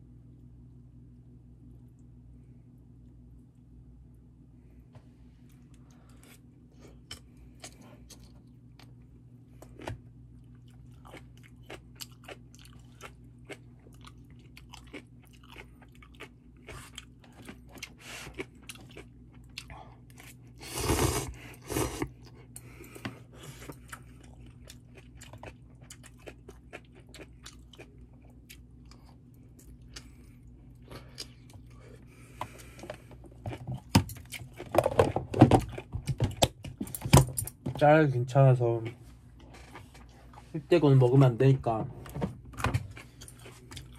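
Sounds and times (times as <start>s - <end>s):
chewing noodles: 5.5s - 37.0s, 42.8s - 43.9s
slurp of noodles: 20.6s - 22.1s.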